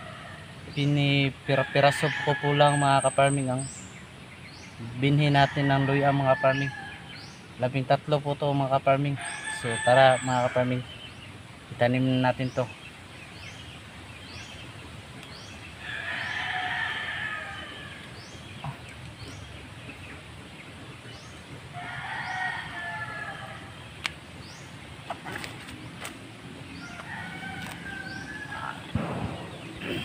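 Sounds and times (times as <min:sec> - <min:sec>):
rooster crowing: 0:15.8 - 0:18.0, 0:21.8 - 0:23.8, 0:26.8 - 0:29.0.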